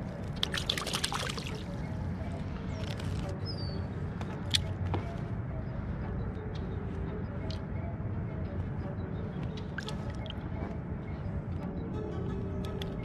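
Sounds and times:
water sloshing and trickling: 0.2s - 1.7s, 9.8s - 10.4s.

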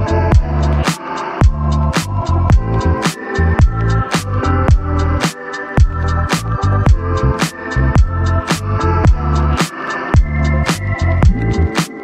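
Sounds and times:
kick drum: 0.3s - 0.5s, 4.7s - 4.9s
bass line: 1.4s - 5.2s, 10.3s - 11.8s.

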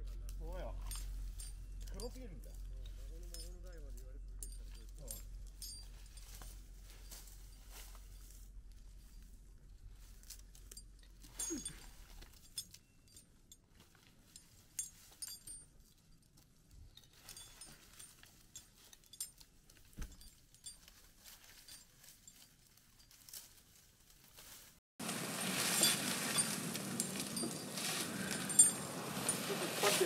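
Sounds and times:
metal climbing gear clinking: 0.1s - 24.8s, 25.6s - 30.0s.

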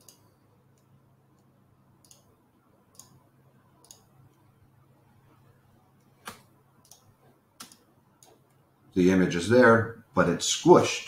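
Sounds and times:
computer mouse clicks: 0.0s - 2.3s, 2.9s - 3.2s, 3.8s - 4.5s, 6.0s - 8.6s
room hum: 0.0s - 11.0s.

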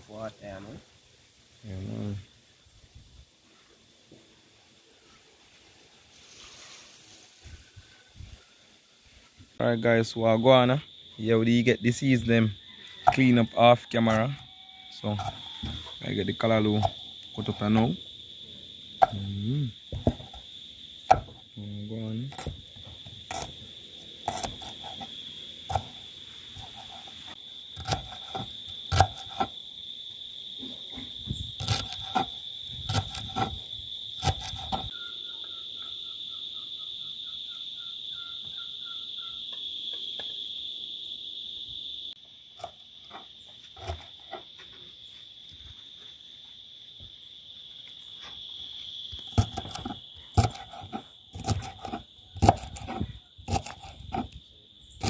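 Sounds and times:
high-pitched insect drone: 6.2s - 55.0s
knife chopping on wooden board: 13.0s - 13.3s, 15.2s - 15.8s, 19.9s - 20.4s, 21.1s - 21.4s, 22.3s - 23.6s, 24.2s - 25.1s, 25.7s - 26.0s, 27.8s - 29.5s, 31.0s - 33.6s, 34.2s - 34.9s, 49.3s - 54.4s.

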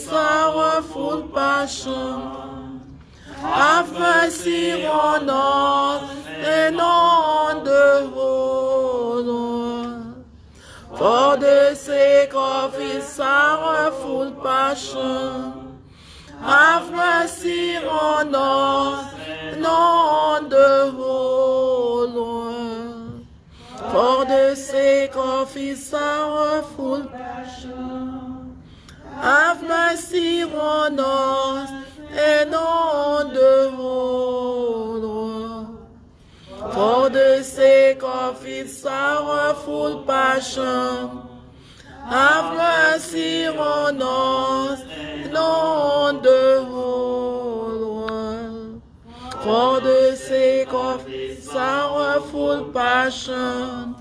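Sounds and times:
person singing a chant: 0.0s - 54.0s
breaths: 3.0s - 3.4s, 10.4s - 11.0s, 15.8s - 16.4s, 23.3s - 23.8s, 28.6s - 29.0s, 36.0s - 36.7s, 41.5s - 42.0s.

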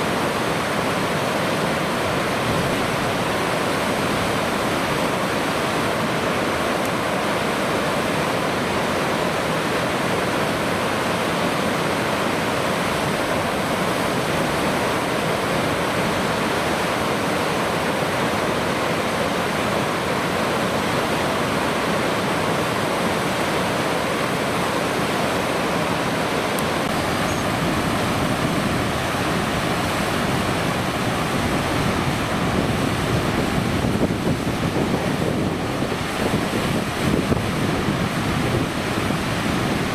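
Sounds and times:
flowing water rushing: 0.0s - 39.9s
wind buffeting microphone: 26.8s - 39.9s.

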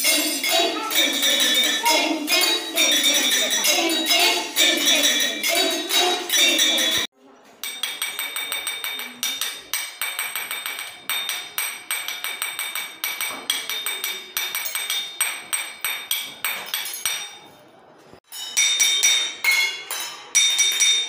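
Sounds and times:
spoons tapping metal tumblers: 0.0s - 17.4s.

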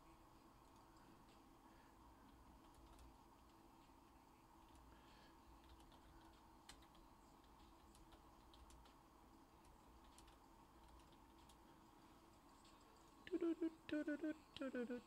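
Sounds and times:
typing on computer keyboard: 2.3s - 3.6s, 5.6s - 9.0s, 9.6s - 11.7s.

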